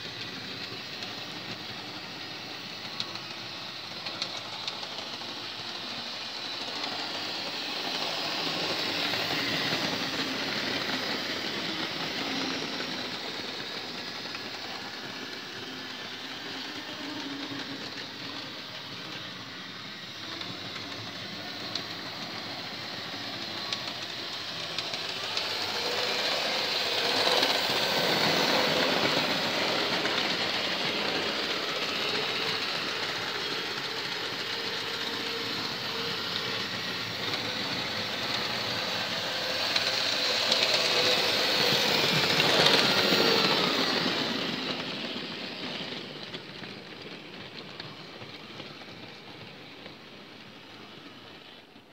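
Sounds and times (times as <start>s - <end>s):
small electric motor whir: 0.0s - 47.1s
model train wheels clicking: 0.0s - 51.9s.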